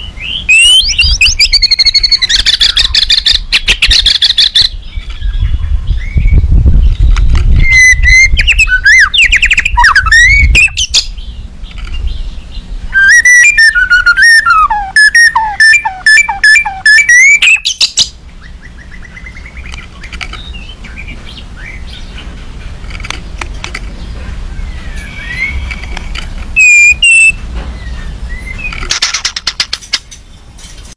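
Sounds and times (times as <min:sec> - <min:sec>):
bird singing whistled phrases: 0:00.0 - 0:06.4, 0:07.6 - 0:11.2, 0:12.9 - 0:19.7, 0:24.7 - 0:25.9, 0:26.6 - 0:28.8
harsh rattling bird clicks: 0:19.6 - 0:20.5, 0:22.8 - 0:24.0
faint bird calls: 0:24.0 - 0:30.5.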